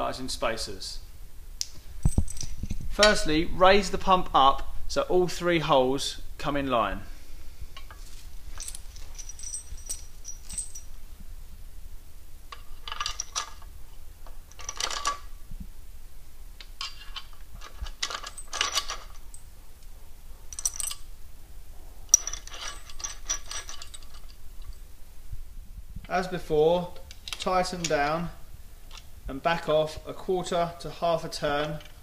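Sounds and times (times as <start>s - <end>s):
metal bolt clinking and scraping: 2.0s - 3.4s, 7.8s - 11.0s, 12.5s - 15.3s, 16.6s - 19.5s, 20.5s - 21.1s, 22.1s - 24.8s, 27.0s - 28.1s.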